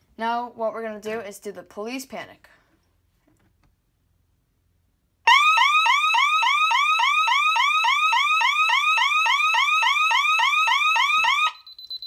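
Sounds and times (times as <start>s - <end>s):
security alarm siren warbling: 5.3s - 12.0s.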